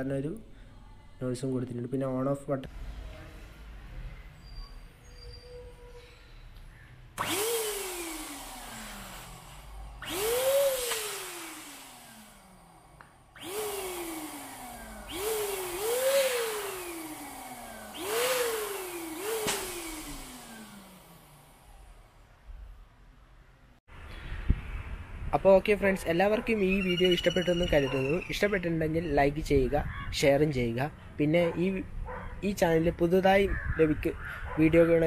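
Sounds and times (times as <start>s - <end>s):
balloon pump blowing air: 13.3s - 21.0s
sharp click: 19.4s - 19.8s.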